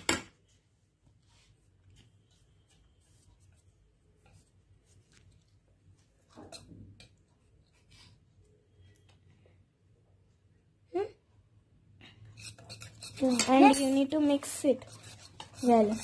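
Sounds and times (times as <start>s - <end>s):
whisk stirring batter in steel bowl: 1.4s - 8.0s, 12.3s - 16.0s.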